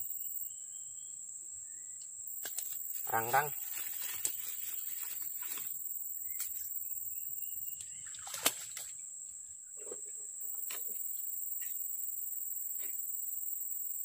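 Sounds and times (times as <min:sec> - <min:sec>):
steady high-pitched hiss: 0:00.0 - 0:14.0
small splash: 0:08.0 - 0:09.0.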